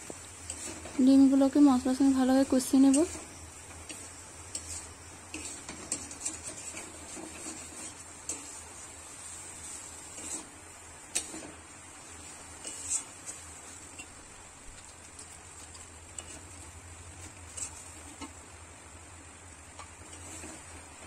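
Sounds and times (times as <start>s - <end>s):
faint steady hiss: 0.0s - 21.0s
metal spatula scraping a pan: 0.4s - 1.1s, 2.6s - 14.2s, 15.2s - 18.4s, 19.8s - 21.0s.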